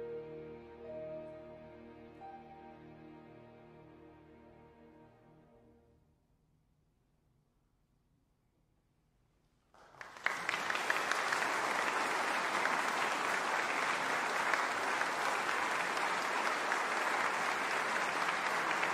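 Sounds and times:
audience applause: 0:09.8 - 0:18.9.

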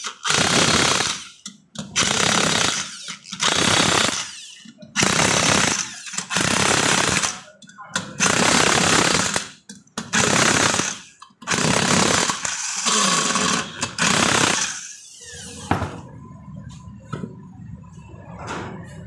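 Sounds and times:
power tool running in bursts: 0:10.2 - 0:14.8.

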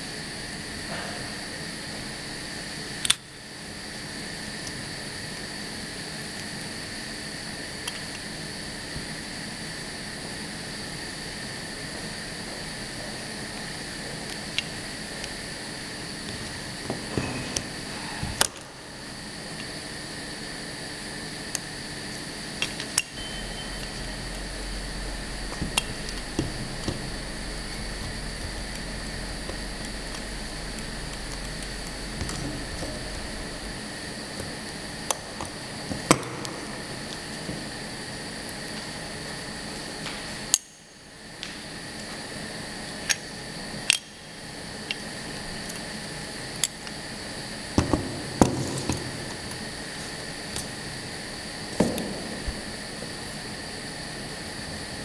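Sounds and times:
machine hum and whine: 0:00.0 - 0:55.0
short beep: 0:23.2 - 0:24.1.

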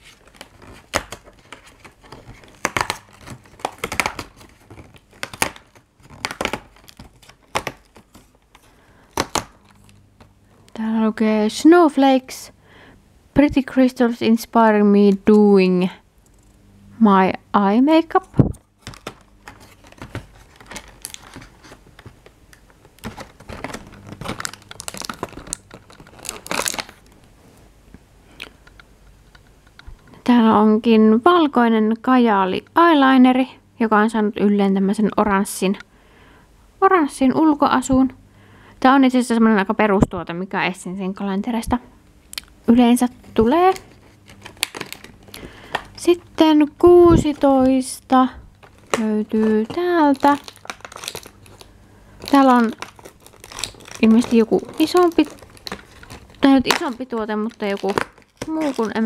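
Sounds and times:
cardboard crinkling and tearing: 0:00.0 - 0:10.0, 0:18.8 - 0:27.2, 0:43.4 - 0:45.9, 0:48.5 - 0:59.0.

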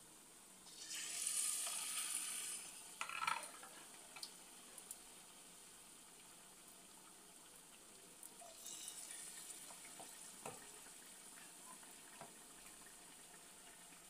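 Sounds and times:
chicken deep-frying in oil: 0:00.4 - 0:14.0
small pops and crackles: 0:03.0 - 0:05.1, 0:06.2 - 0:08.6.

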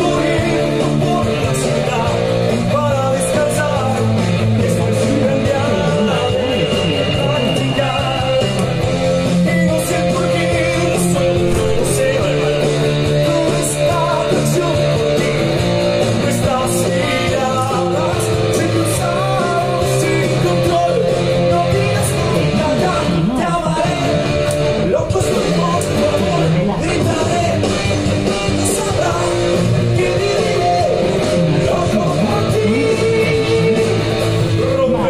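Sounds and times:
electric guitar through amplifier: 0:00.0 - 0:35.0
man singing rock song: 0:00.0 - 0:35.0.

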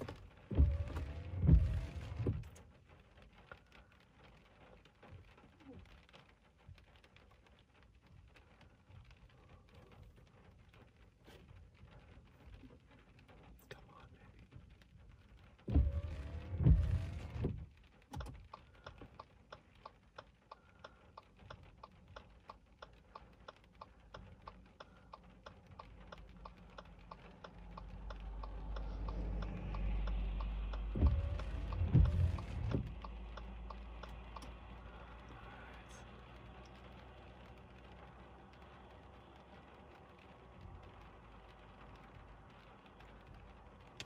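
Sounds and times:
raindrops tapping: 0:00.0 - 0:44.0
heavy thumps: 0:30.8 - 0:33.2.

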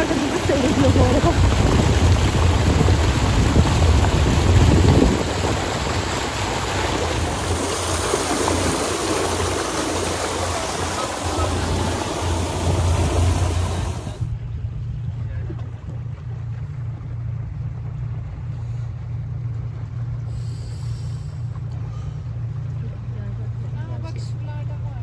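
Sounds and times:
wind noise: 0:00.0 - 0:14.4
water rushing: 0:00.0 - 0:14.5
boat engine drone: 0:00.0 - 0:25.0.

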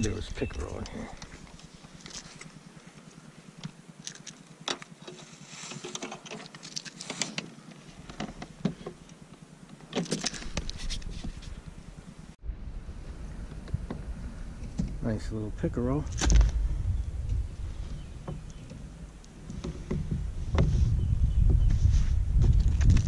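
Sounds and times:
fishing tackle clicks and rattles: 0:04.0 - 0:07.4, 0:10.0 - 0:10.9
low rumble: 0:11.5 - 0:23.0.

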